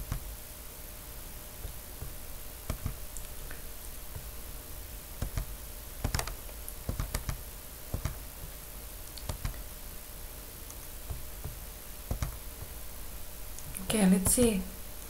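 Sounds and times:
keyboard and mouse clicks: 0.0s - 0.2s, 2.7s - 3.6s, 5.2s - 8.2s, 9.1s - 9.6s, 10.7s - 12.7s.

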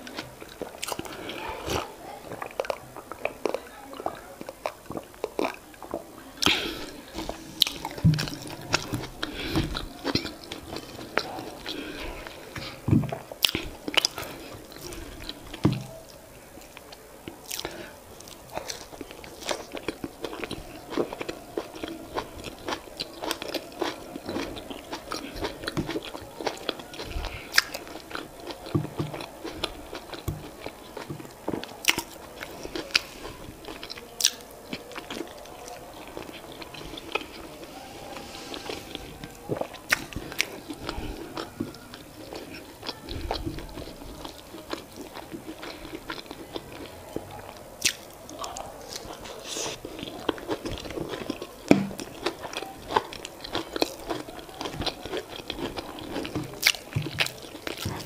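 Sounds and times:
person chewing with wet mouth sounds: 0.0s - 58.0s
mouth smacks and clicks: 47.8s - 58.0s.

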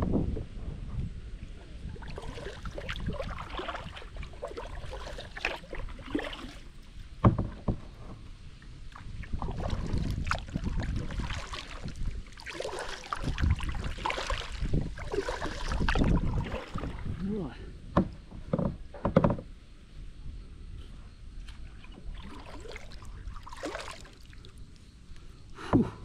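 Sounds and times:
paddle splashing through water: 1.8s - 17.3s, 21.4s - 24.6s
water dripping off paddle: 2.0s - 6.7s.

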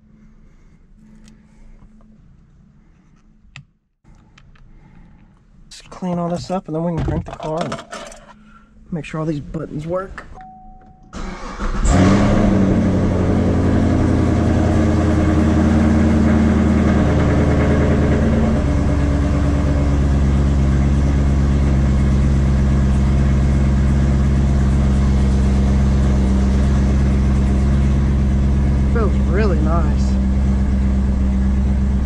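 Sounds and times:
car engine starting and idling: 8.2s - 32.0s.

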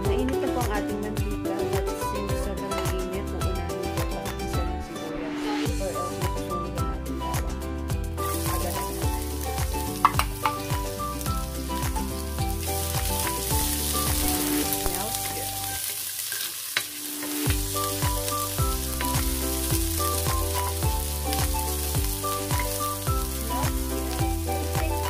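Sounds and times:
background music with bass: 0.0s - 15.8s, 17.3s - 25.0s
onions sizzling in oil: 8.0s - 25.0s.

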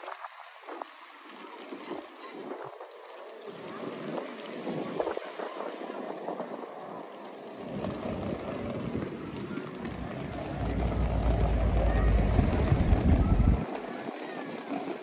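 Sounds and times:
street ambience: 0.0s - 15.0s
vehicle engine rumble: 6.8s - 14.8s.

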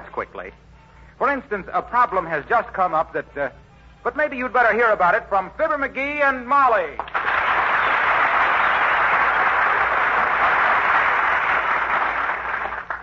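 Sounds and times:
studio audience applauding: 7.0s - 13.0s.

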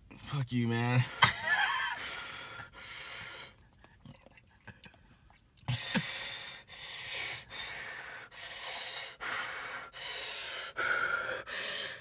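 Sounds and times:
person panting through open mouth: 5.6s - 12.0s.

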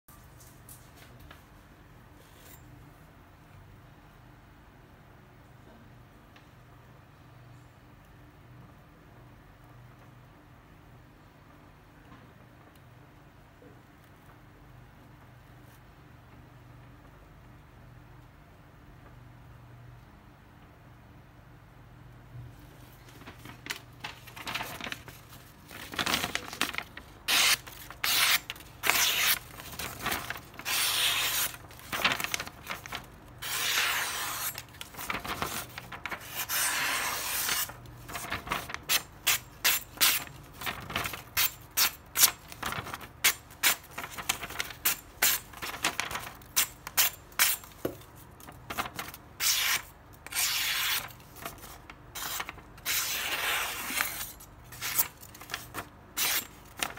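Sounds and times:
paper rustling: 22.8s - 49.8s, 50.7s - 56.9s
knife slicing paper: 25.8s - 56.9s.

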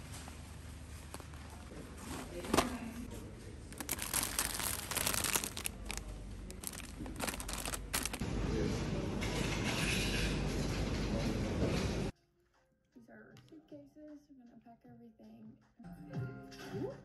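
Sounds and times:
snack bags crinkling: 3.6s - 8.2s.

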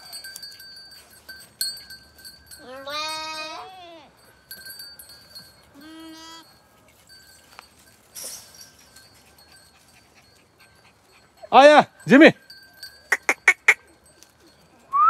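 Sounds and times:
goat kids bleating: 2.6s - 4.1s, 5.7s - 6.5s.

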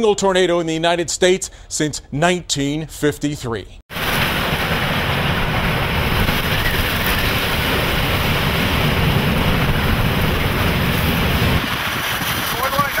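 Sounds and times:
deep rumble: 3.9s - 13.0s
wind and rain buffeting a car: 3.9s - 13.0s.

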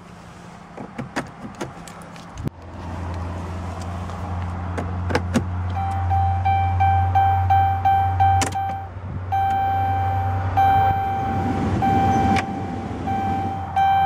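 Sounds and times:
diesel engine idling: 2.0s - 14.0s
dashboard warning chime beeping: 5.7s - 14.0s.

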